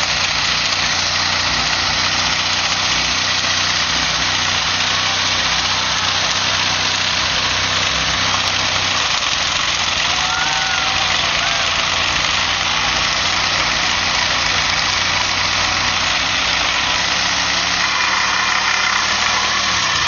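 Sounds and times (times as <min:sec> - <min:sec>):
car engine running: 0:00.0 - 0:20.0
tyres spinning hiss: 0:00.0 - 0:20.0.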